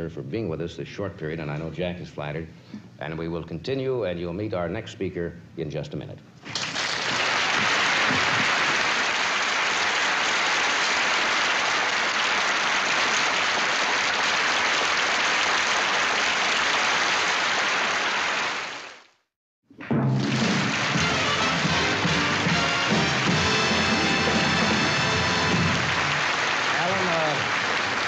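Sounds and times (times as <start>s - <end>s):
audience applauding: 6.5s - 19.0s, 20.2s - 28.0s.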